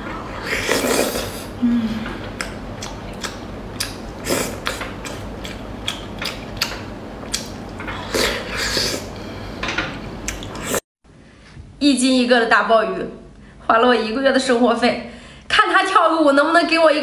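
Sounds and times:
slurping oysters: 0.0s - 1.5s
chewing with wet clicks: 2.3s - 4.0s, 4.6s - 7.9s.

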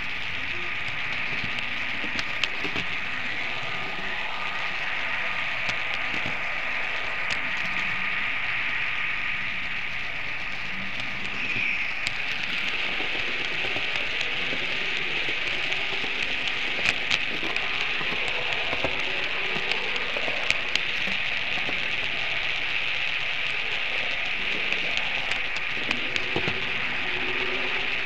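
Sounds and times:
model train whirring: 0.0s - 28.0s
sharp track clicks: 0.0s - 28.0s.

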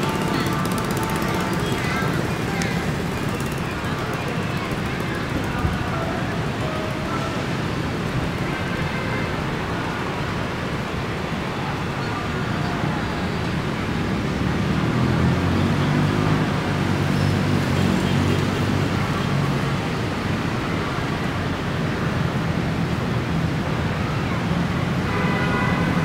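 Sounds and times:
motorbike engine passing: 0.0s - 6.7s
road traffic noise: 0.0s - 26.0s.

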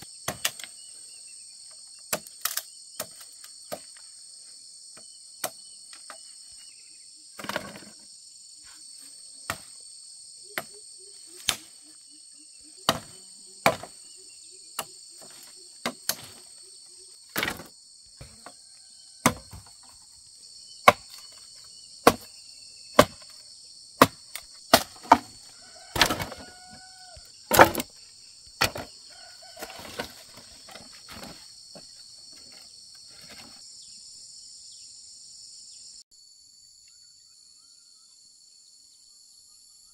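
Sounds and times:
insects droning: 0.0s - 39.9s
sharp knocks: 27.5s - 27.9s.

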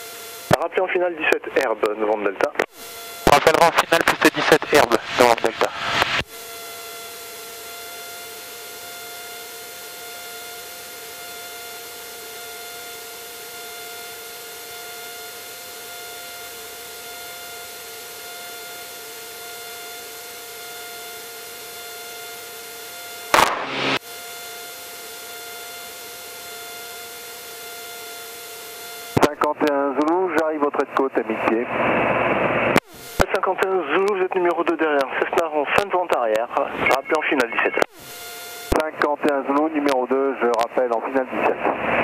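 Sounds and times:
propeller plane engine drone: 0.0s - 42.0s
loud burst: 23.3s - 24.0s.

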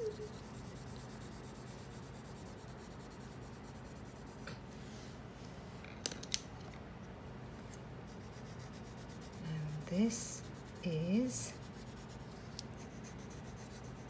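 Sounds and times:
pencil scratching on paper: 0.0s - 4.4s, 8.1s - 14.0s.

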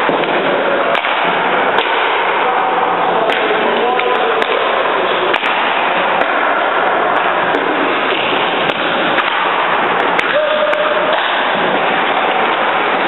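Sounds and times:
loud ice rink din: 0.0s - 13.0s
sharp clacks: 5.3s - 6.4s, 7.1s - 13.0s.

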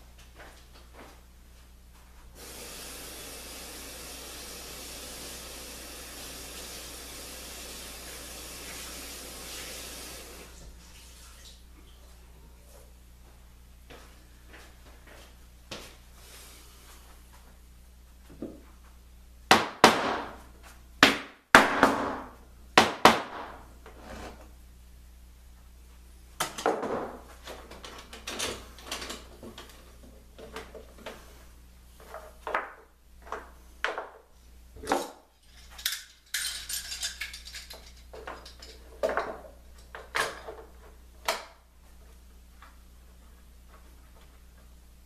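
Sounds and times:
short scraping on wood: 23.9s - 24.5s.

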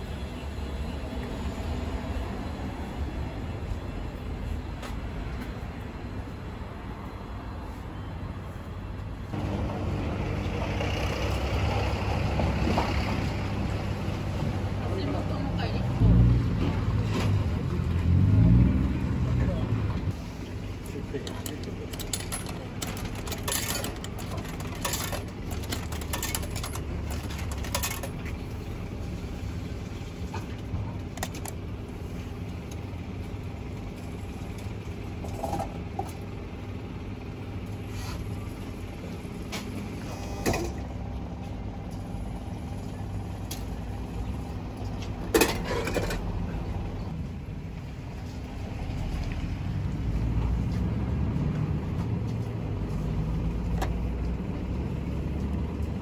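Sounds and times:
vending machine mechanical hum: 9.3s - 16.0s, 20.4s - 48.8s.

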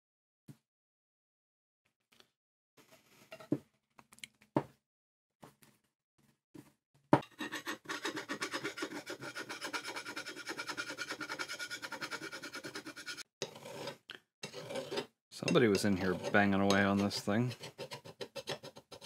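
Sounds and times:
file scraping steel: 7.2s - 19.0s.

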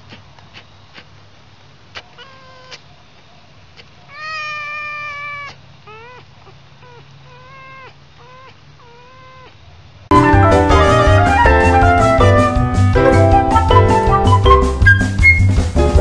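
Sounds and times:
young fox whining: 1.9s - 2.9s, 4.1s - 9.7s.

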